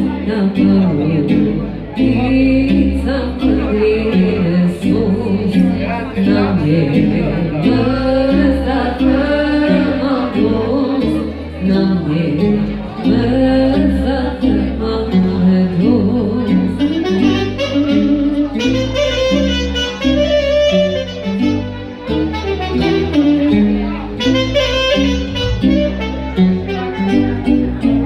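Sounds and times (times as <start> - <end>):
woman singing into microphone: 0.0 - 18.9
bass line: 0.0 - 28.0
keyboard: 0.0 - 28.0
saxophone melody: 16.6 - 28.0.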